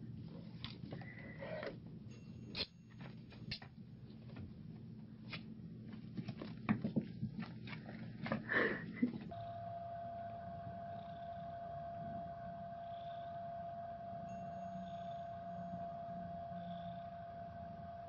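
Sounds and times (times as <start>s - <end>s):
steady hum: 0.0s - 18.0s
held tone: 9.3s - 18.0s.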